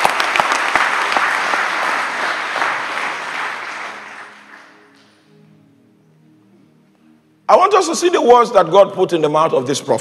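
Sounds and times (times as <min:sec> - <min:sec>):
congregation applauding: 0:00.0 - 0:05.3
faint music tones: 0:00.2 - 0:10.0.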